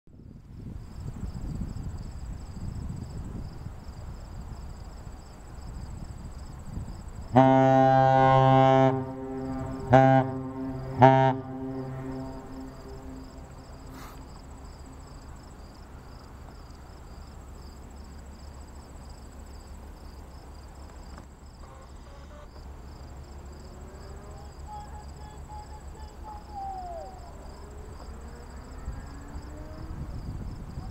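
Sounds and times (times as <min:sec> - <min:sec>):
crickets chirping: 0:00.2 - 0:30.9
brief falling call: 0:24.2 - 0:27.6.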